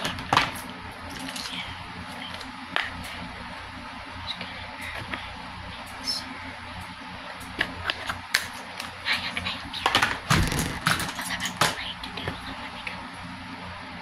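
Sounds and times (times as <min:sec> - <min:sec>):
bumps and rustling: 0:10.3 - 0:11.0.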